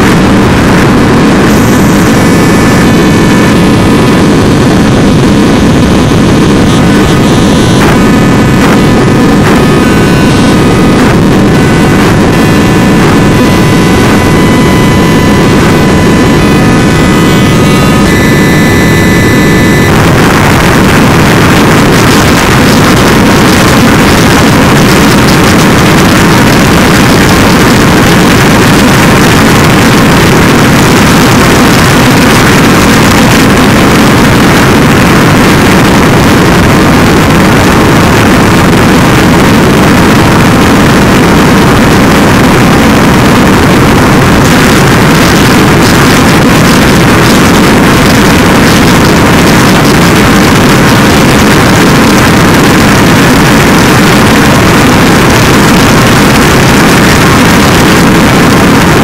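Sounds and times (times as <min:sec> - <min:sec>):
distorted electronic noise wall: 0:00.0 - 0:59.0.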